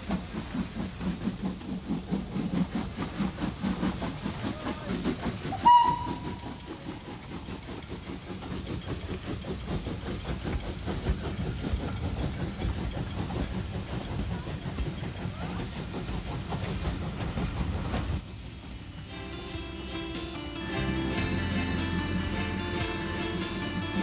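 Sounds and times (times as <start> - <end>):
steam train hiss and rhythmic beat: 0.0 - 24.0
steam locomotive whistle: 5.4 - 6.8, 19.1 - 24.0.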